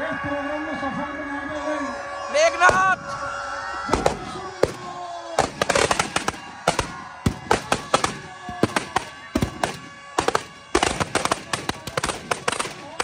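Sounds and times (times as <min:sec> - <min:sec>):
firecrackers banging: 0:03.8 - 0:13.0.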